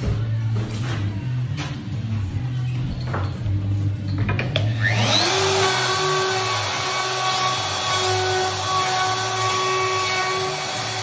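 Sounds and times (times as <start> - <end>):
power tool motor whining: 4.6 - 11.0.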